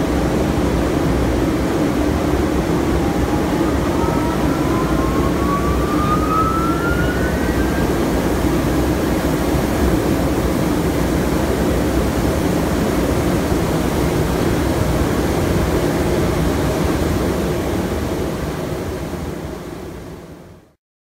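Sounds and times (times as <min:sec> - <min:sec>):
organ blowers rushing air: 0:00.0 - 0:19.2
low motor hum: 0:01.6 - 0:11.0.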